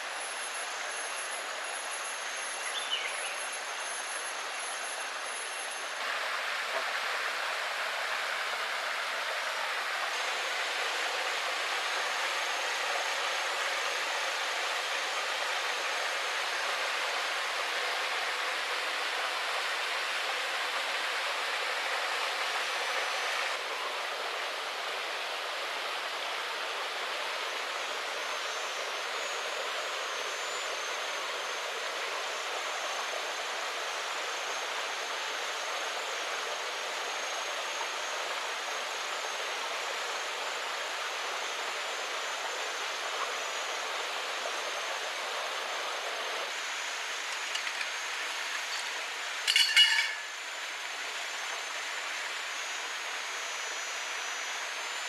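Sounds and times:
thin high steady tones: 0:00.0 - 0:22.9, 0:36.8 - 0:50.8
short metallic clatter: 0:49.5 - 0:50.3.

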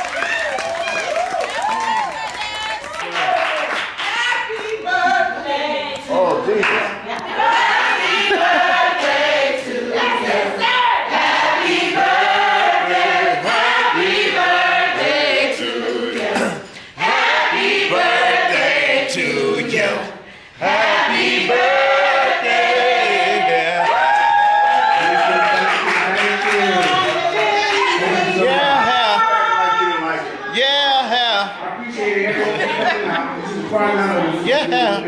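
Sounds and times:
choir singing: 0:07.4 - 0:23.8.

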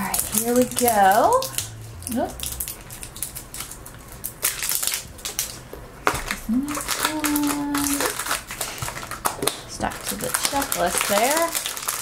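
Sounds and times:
foil crinkling: 0:00.0 - 0:12.0
person humming: 0:06.4 - 0:08.1.

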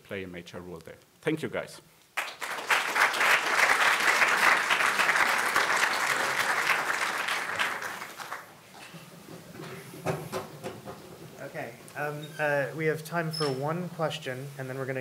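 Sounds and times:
audience applauding: 0:02.2 - 0:08.6.

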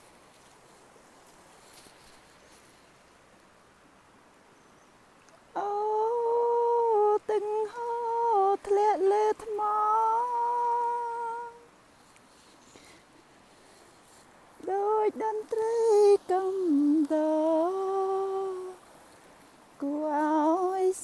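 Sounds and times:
faint outdoor ambience: 0:00.0 - 0:21.0
woman humming: 0:05.6 - 0:11.7, 0:14.6 - 0:18.8.

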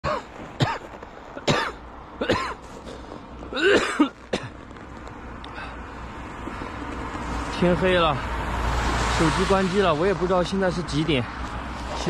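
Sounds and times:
man coughing: 0:00.0 - 0:02.6, 0:03.5 - 0:04.5.

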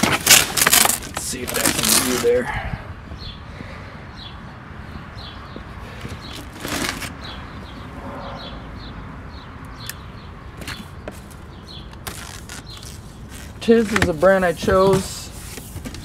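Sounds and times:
packing tape being cut: 0:00.0 - 0:02.2, 0:11.9 - 0:13.7
small bird chirping: 0:04.1 - 0:13.8
brief whoosh: 0:08.0 - 0:08.8
hands handling cardboard box: 0:12.0 - 0:16.0.

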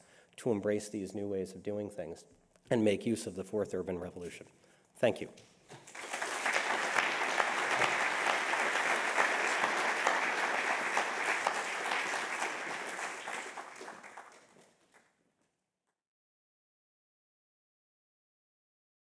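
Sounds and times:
audience applauding: 0:05.8 - 0:15.1.

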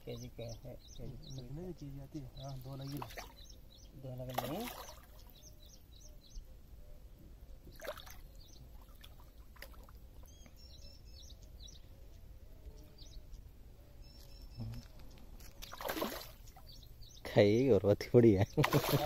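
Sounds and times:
small birds chirping faintly: 0:00.0 - 0:19.0
fish splashing at water surface: 0:15.6 - 0:16.5, 0:18.6 - 0:19.0.

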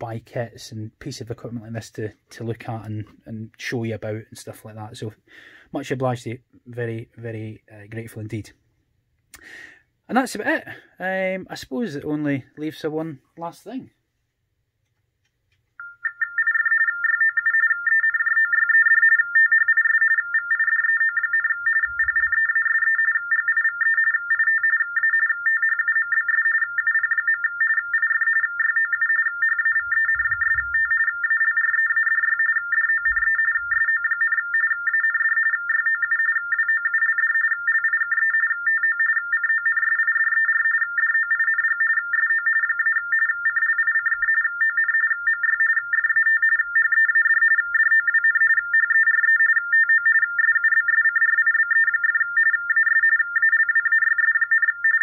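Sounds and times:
modem tones warbling: 0:15.8 - 0:55.0.

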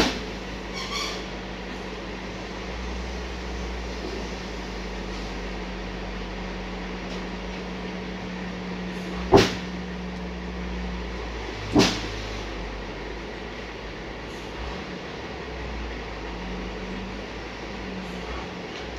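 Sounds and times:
truck engine running: 0:00.0 - 0:18.9
sharp knocks: 0:09.3 - 0:09.7.

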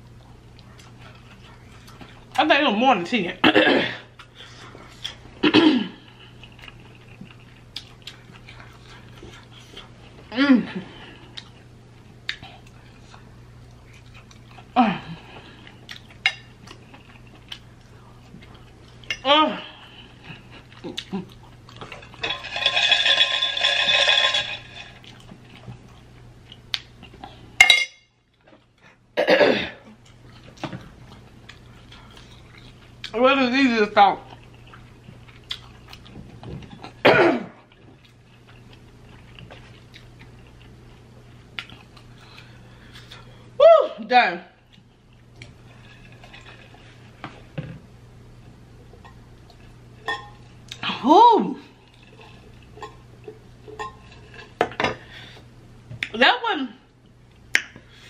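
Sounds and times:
low steady hum: 0:00.0 - 0:58.0
mouth noises while eating: 0:19.6 - 0:22.2.

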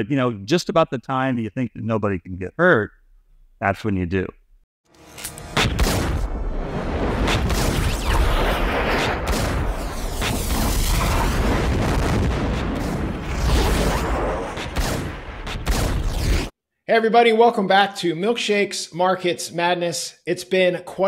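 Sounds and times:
dramatic film music: 0:04.9 - 0:07.1
gunshots: 0:05.5 - 0:06.3, 0:07.0 - 0:16.5
deep booms: 0:05.5 - 0:16.2.

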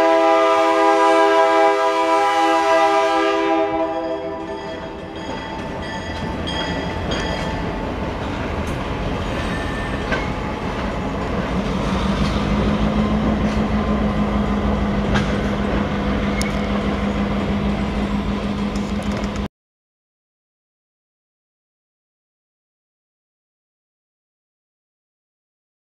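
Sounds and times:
locomotive engine drone: 0:00.0 - 0:19.5
train wheels rumbling on rails: 0:00.0 - 0:19.5.

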